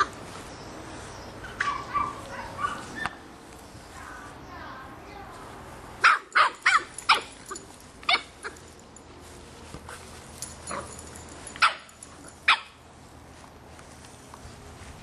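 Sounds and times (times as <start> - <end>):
puppy barking: 1.4 - 3.2, 6.0 - 8.6, 11.6 - 12.8.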